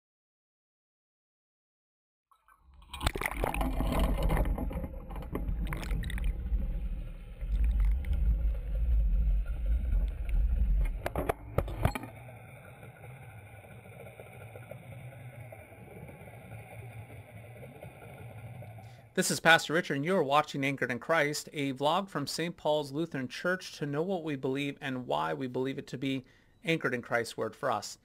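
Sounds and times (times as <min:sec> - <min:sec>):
steady underwater hum: 0:02.9 - 0:27.2
heavy rumbling water wash: 0:03.0 - 0:19.2.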